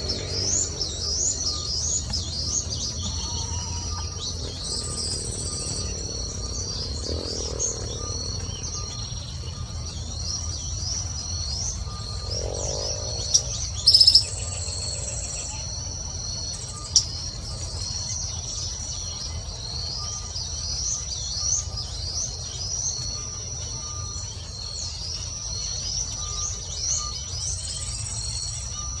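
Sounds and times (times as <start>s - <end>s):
small birds chirping: 0.0s - 29.0s
high-pitched insect drone: 11.3s - 18.3s.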